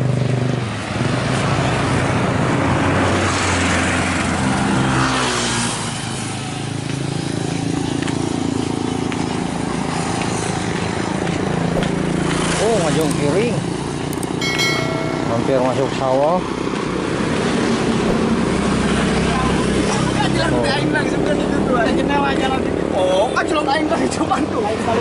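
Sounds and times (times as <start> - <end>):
wind and road noise: 0.0 - 14.3.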